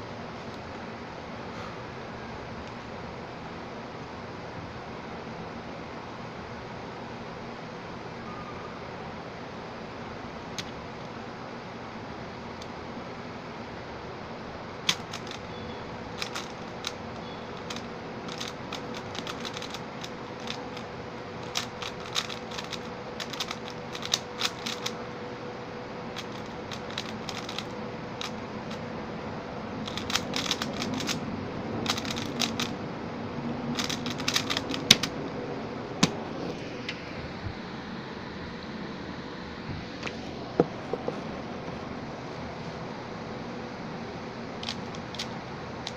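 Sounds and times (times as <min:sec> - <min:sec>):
faint hum: 0:00.0 - 0:45.9
puzzle cube clicking: 0:14.9 - 0:15.5, 0:16.2 - 0:17.0, 0:17.6 - 0:25.0, 0:26.2 - 0:28.8, 0:29.8 - 0:31.2, 0:31.8 - 0:32.7, 0:33.8 - 0:35.1, 0:44.6 - 0:45.9.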